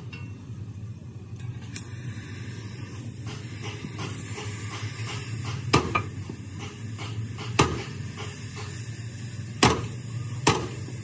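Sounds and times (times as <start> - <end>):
low hum and hiss: 0.0 - 11.0
metal-on-metal clanks: 3.2 - 8.8.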